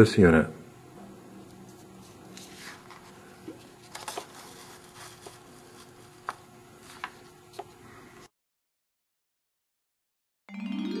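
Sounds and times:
faint steady hum: 0:00.0 - 0:08.3
brochure pages rustling: 0:01.7 - 0:07.8.

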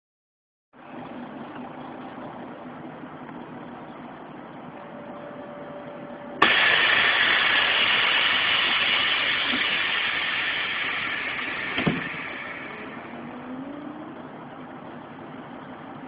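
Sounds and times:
vehicle engine idling: 0:00.8 - 0:16.0
loud hiss: 0:06.4 - 0:13.8.

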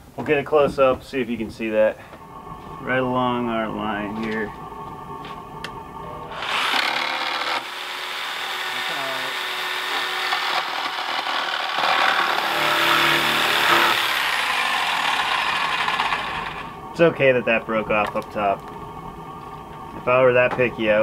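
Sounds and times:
jigsaw cutting wood: 0:06.3 - 0:16.7.

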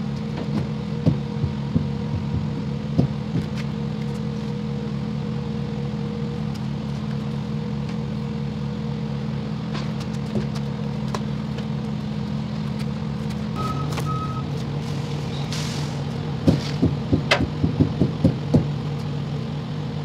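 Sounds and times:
diesel truck engine idling: 0:00.0 - 0:20.0
short electronic beep: 0:13.6 - 0:14.5.

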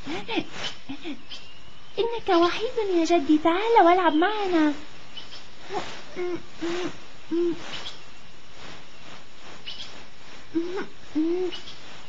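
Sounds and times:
faint steady hiss: 0:00.0 - 0:12.0
owl hooting: 0:03.8 - 0:08.2, 0:09.6 - 0:12.0
faint high chirps: 0:03.8 - 0:12.0.

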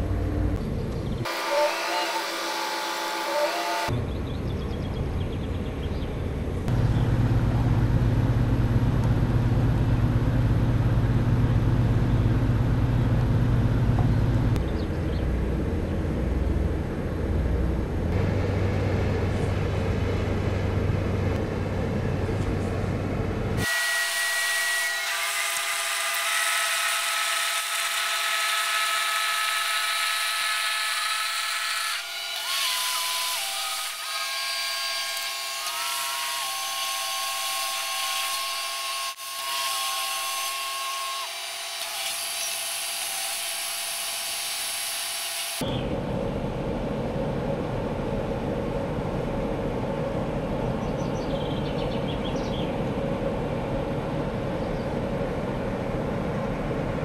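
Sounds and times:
high mechanical whine: 0:00.0 - 0:24.9
boat diesel engine running: 0:04.0 - 0:23.6.

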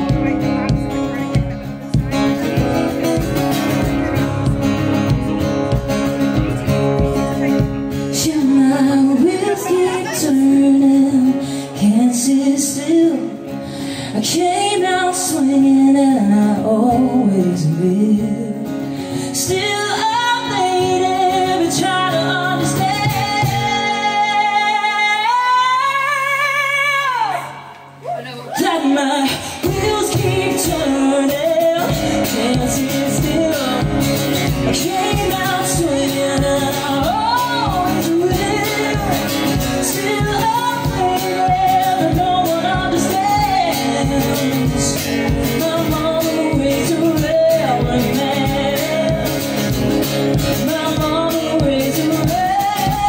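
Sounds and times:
steady drum beat: 0:00.0 - 0:08.1
acoustic guitar: 0:00.0 - 0:53.0
live band playing: 0:00.0 - 0:53.0
woman singing: 0:07.9 - 0:27.7, 0:28.6 - 0:53.0.

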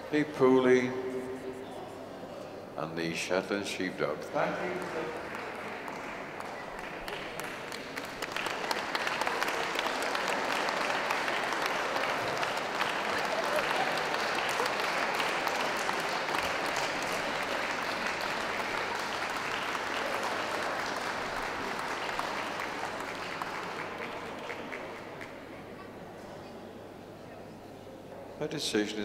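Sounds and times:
audience applauding: 0:04.4 - 0:25.6.

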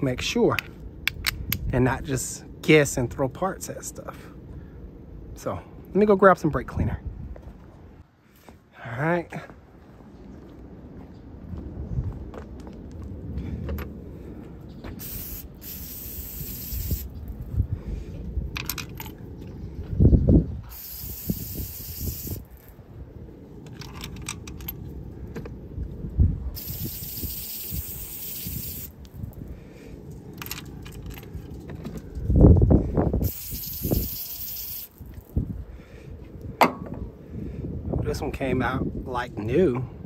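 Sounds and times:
low rumbling: 0:09.6 - 0:26.8, 0:28.9 - 0:33.3
aerosol spray hissing: 0:15.0 - 0:17.1, 0:20.7 - 0:22.5, 0:26.6 - 0:29.0, 0:33.2 - 0:35.0.

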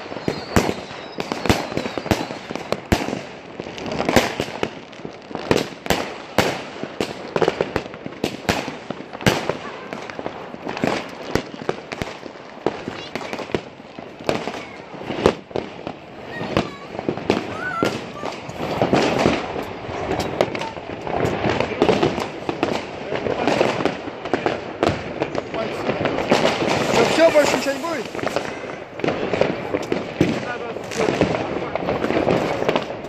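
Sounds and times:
fireworks bangs and pops: 0:00.0 - 0:33.0.

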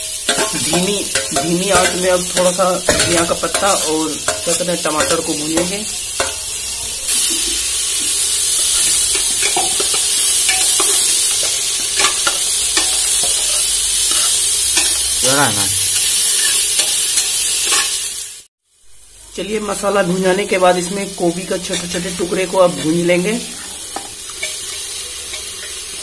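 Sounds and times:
metal spatula scraping a pot: 0:00.0 - 0:06.5, 0:08.6 - 0:15.0, 0:16.0 - 0:18.0
vegetables sizzling in hot oil: 0:00.0 - 0:26.0.

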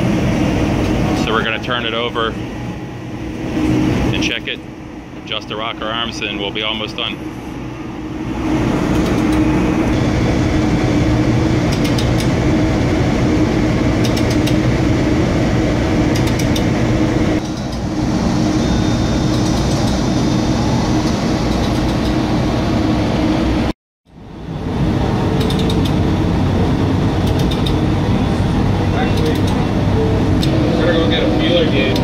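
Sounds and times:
marine diesel generators droning: 0:00.0 - 0:32.0.

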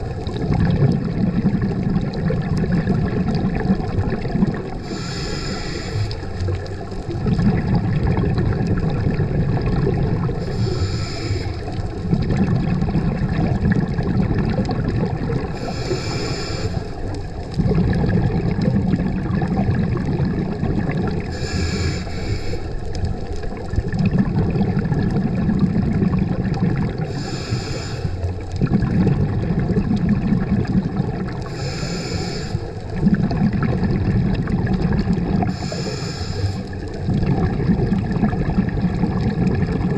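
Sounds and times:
exhaled air bubbling: 0:00.0 - 0:39.9
regulator hiss on inhale: 0:04.8 - 0:06.6, 0:10.4 - 0:12.1, 0:15.5 - 0:17.2, 0:21.3 - 0:23.1, 0:27.0 - 0:28.4, 0:31.4 - 0:33.0, 0:35.5 - 0:37.0.

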